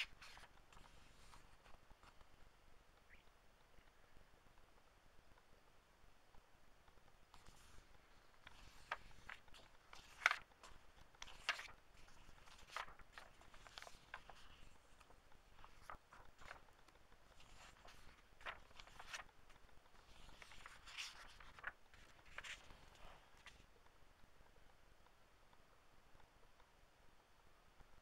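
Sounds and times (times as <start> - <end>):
book pages rustling: 0.0 - 2.5, 6.9 - 23.9.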